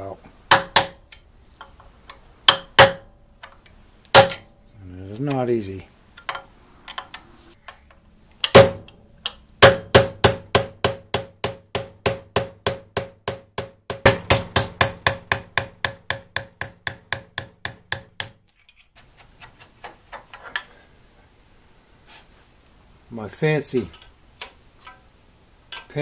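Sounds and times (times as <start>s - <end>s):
hammer striking metal punch: 0.5s - 1.2s, 2.5s - 3.1s, 4.1s - 4.5s, 8.4s - 18.6s.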